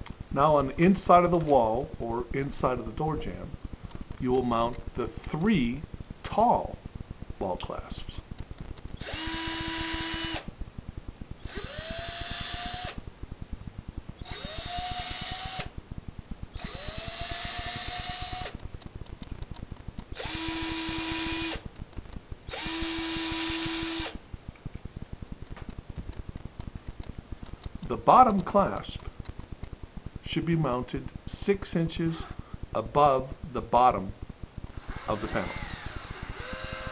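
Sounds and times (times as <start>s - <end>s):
cordless drill motor whine: 9.0s - 10.5s, 11.4s - 13.0s, 14.2s - 15.8s, 16.5s - 18.6s, 20.1s - 21.7s, 22.5s - 24.2s, 32.1s - 32.4s, 34.6s - 36.9s.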